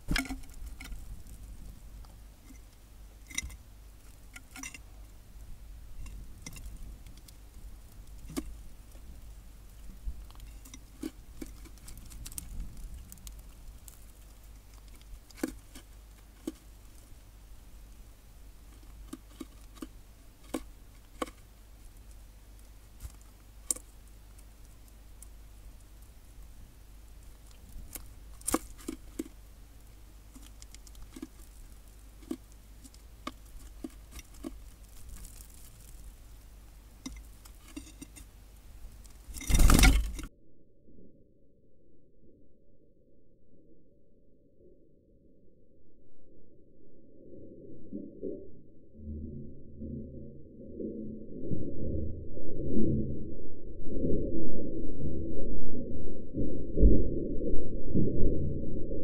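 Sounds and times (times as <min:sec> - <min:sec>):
birds pecking and hopping on tray: 0:00.0 - 0:04.9, 0:06.0 - 0:40.3
low steady hum: 0:00.0 - 0:59.0.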